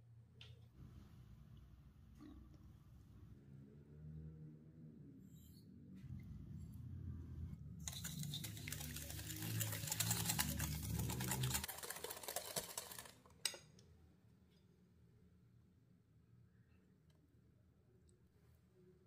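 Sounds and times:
wire whisk beating in glass bowl: 0:07.8 - 0:13.6.

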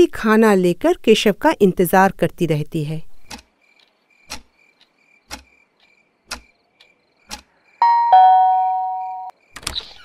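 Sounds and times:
wall clock ticking: 0:03.2 - 0:07.5
crickets chirping: 0:03.6 - 0:09.5
ding-dong doorbell chime: 0:07.8 - 0:09.3.

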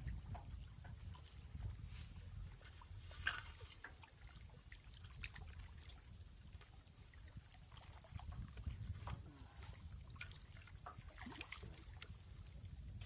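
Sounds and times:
shallow water trickling and splashing: 0:00.0 - 0:13.0.

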